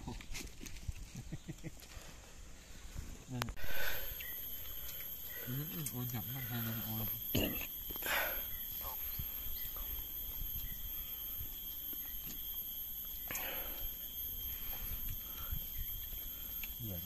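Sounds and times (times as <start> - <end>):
high-pitched insect drone: 1.2 - 17.0
faint ticks: 14.7 - 16.8.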